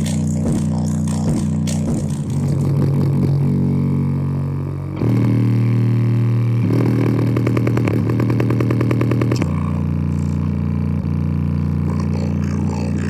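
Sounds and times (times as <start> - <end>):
rapid rattling pulse: 0.0 - 3.6
distorted bass from speaker: 0.0 - 13.0.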